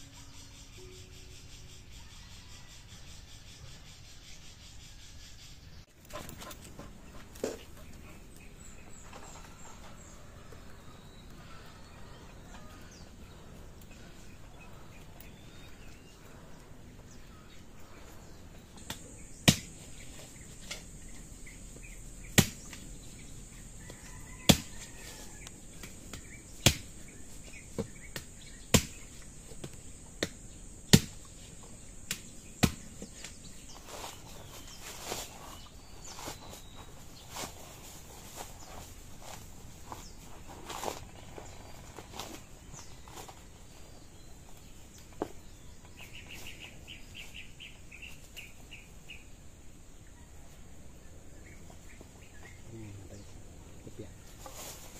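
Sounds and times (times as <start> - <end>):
hand tool chopping into ground: 18.8 - 20.9, 22.3 - 23.0, 23.8 - 31.4, 32.0 - 37.6.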